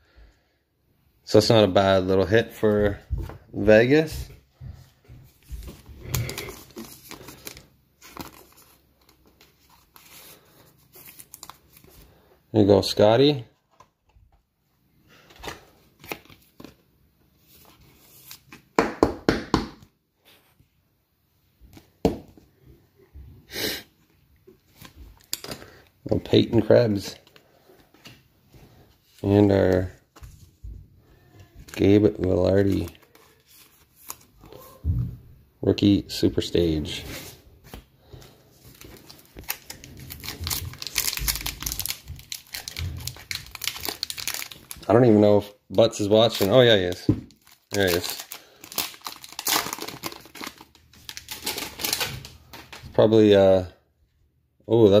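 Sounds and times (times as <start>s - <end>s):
foil wrapper crinkling and ripping: 5.7s - 12.2s, 38.6s - 45.1s, 46.2s - 52.8s
plastic rustling and scraping: 36.9s - 45.0s.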